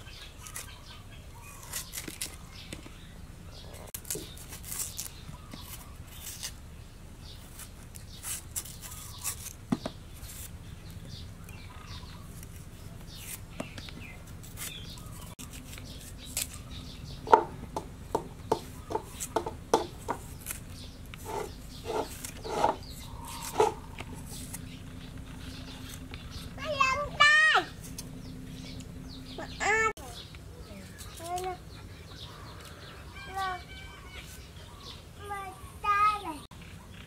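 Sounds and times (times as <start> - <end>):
cleaver scraping tuber skin: 1.5 - 2.4, 4.0 - 6.6, 7.4 - 9.6, 12.2 - 16.9, 18.6 - 26.5.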